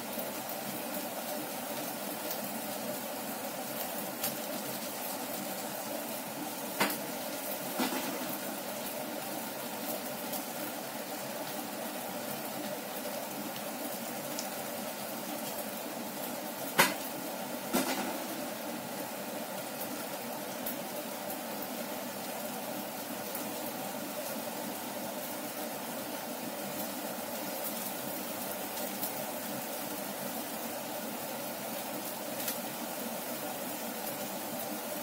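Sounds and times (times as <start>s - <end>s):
soup bubbling in saucepan: 0.0s - 35.0s.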